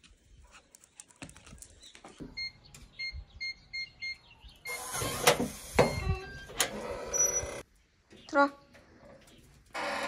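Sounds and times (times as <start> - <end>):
keypad beeps: 2.4 - 4.8.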